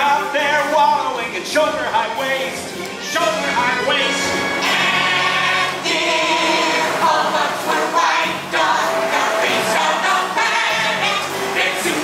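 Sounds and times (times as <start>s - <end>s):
instrumental backing music: 0.0s - 12.0s
chorus singing: 3.4s - 12.0s.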